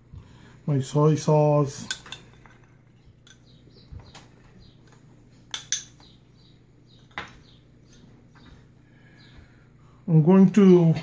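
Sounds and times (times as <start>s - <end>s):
metal spoon clinking on glass bowl: 5.5s - 6.0s.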